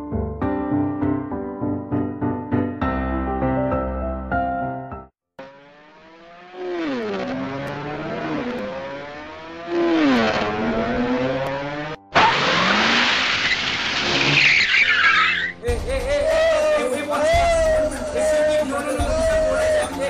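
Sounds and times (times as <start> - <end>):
vehicle engine revving past: 5.4 - 14.4
rush of engine noise: 5.4 - 14.7
tyres skidding: 6.6 - 18.4.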